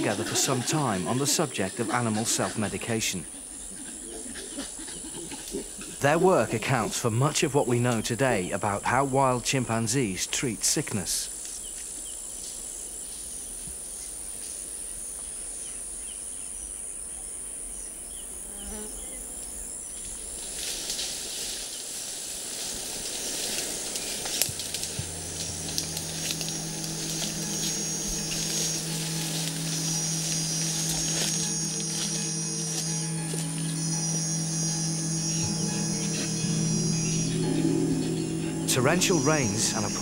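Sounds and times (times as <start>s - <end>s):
insects buzzing: 0.0s - 40.0s
leaves rustling: 19.9s - 40.0s
low steady tones: 23.1s - 40.0s.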